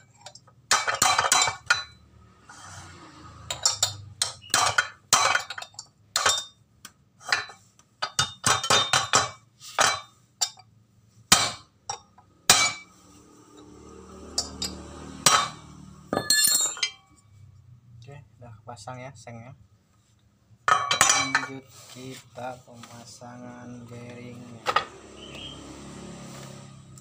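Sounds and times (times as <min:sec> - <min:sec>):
metal tool clinking on metal: 0:14.3 - 0:17.2.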